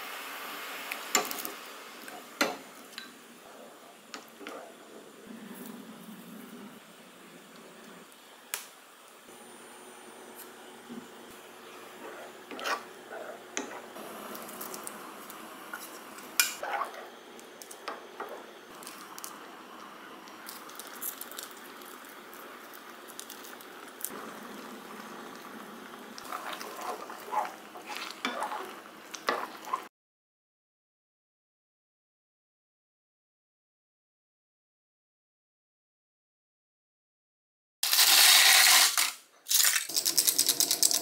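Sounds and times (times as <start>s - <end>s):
wooden spoon scraping pan: 10.4s - 15.0s, 26.2s - 29.9s
sauce bubbling in a pan: 20.4s - 29.9s.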